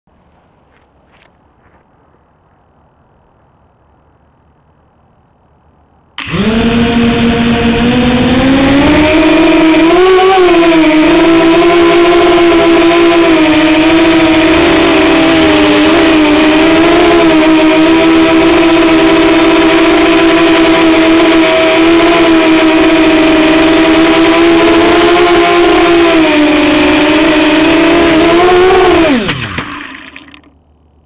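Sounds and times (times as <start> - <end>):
drone motors buzzing whine: 5.0 - 31.0.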